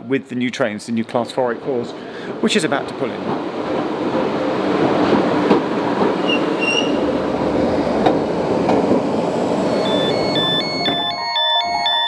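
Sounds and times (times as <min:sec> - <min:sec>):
electric train rolling past: 0:01.1 - 0:12.0
brief high squeal: 0:06.2 - 0:07.0.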